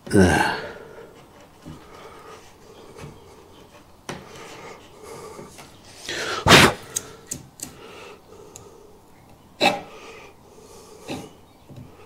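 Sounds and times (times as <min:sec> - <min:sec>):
chisel scraping wood: 0:00.8 - 0:06.1.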